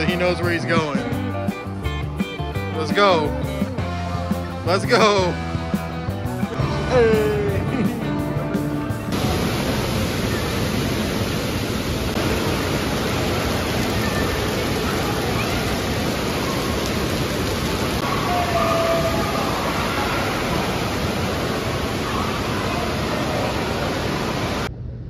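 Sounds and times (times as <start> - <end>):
distant voices: 9.1 - 24.7
splashing water rushing: 9.1 - 24.7.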